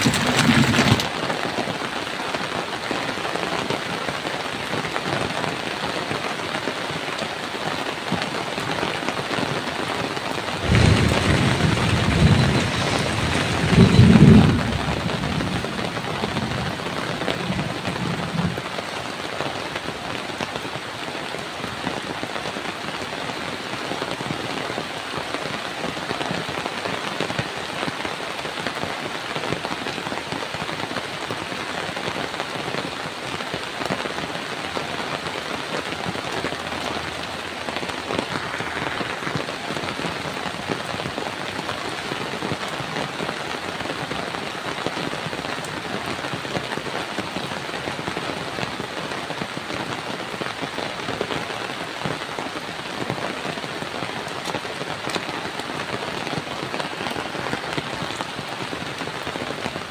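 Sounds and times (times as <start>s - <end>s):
steady rain falling: 0.0s - 59.9s.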